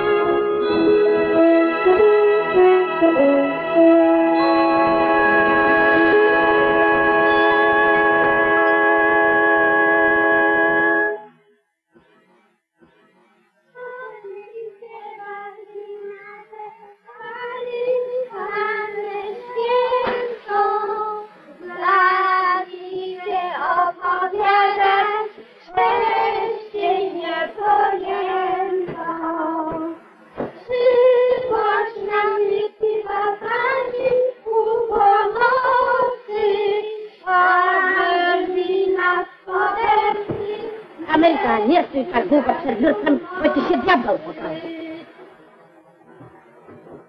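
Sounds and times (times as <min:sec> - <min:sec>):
high female voice singing: 0:30.7 - 0:45.1.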